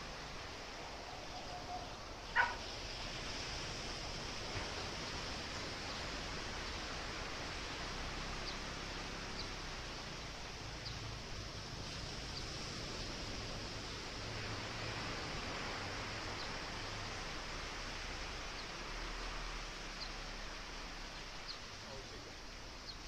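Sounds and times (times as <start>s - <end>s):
sea: 0.0s - 23.0s
wind: 0.0s - 23.0s
sharp animal call: 1.6s - 2.7s.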